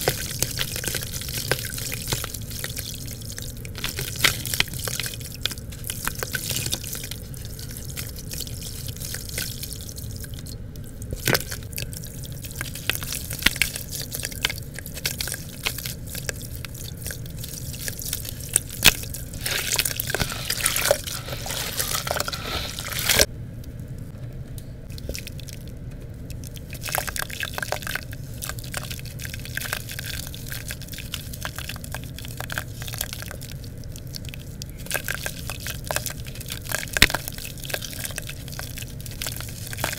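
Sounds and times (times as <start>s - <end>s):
wet mud squelching: 0.0s - 23.3s, 26.6s - 39.9s.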